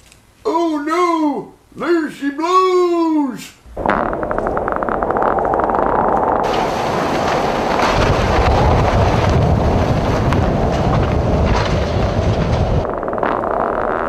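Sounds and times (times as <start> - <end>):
strong storm wind: 3.6 - 13.2
wind buffeting microphone: 3.6 - 13.2.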